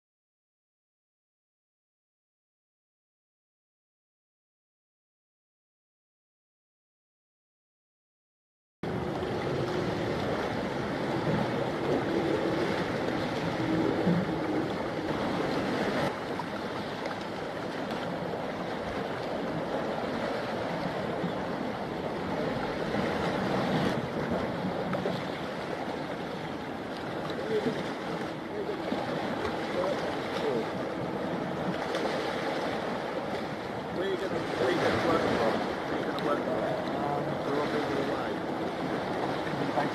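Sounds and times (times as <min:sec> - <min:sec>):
sea waves washing on shore: 0:08.8 - 0:39.9
wind on microphone: 0:08.8 - 0:39.9.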